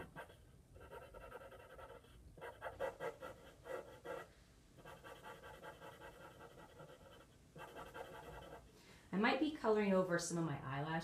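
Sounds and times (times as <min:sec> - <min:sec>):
marker scratching on paper: 0:00.0 - 0:08.7.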